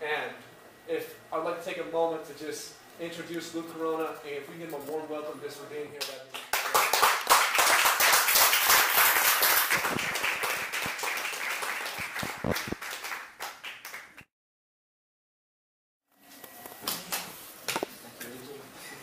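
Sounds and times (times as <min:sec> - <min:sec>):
audience applauding: 0:06.4 - 0:14.2.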